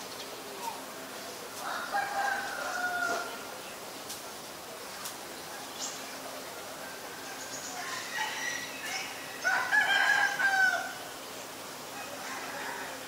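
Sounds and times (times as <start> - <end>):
rooster crowing: 1.6 - 3.3, 7.8 - 11.0, 12.0 - 13.0.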